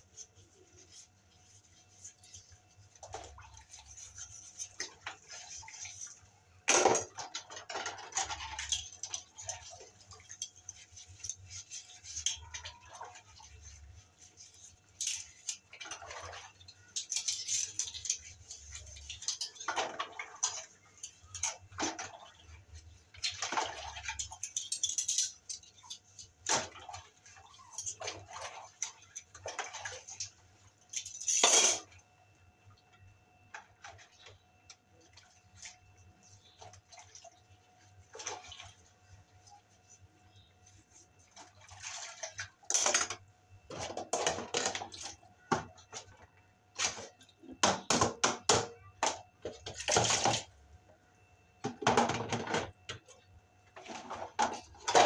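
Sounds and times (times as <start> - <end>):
water splashing and swishing: 26.4 - 30.8, 40.8 - 42.7
dishes and cutlery clinking: 31.0 - 32.0.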